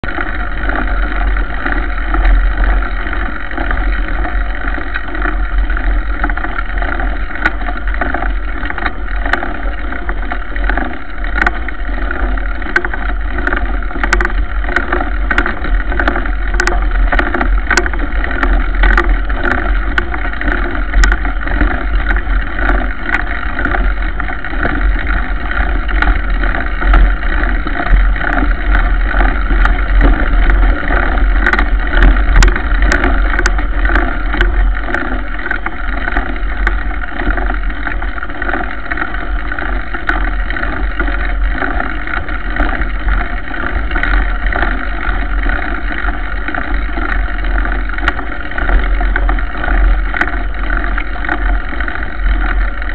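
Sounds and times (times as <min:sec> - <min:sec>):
bike clicks and rattles: 0:00.0 - 0:52.9
bike tyre rumbling on dirt: 0:00.0 - 0:52.9.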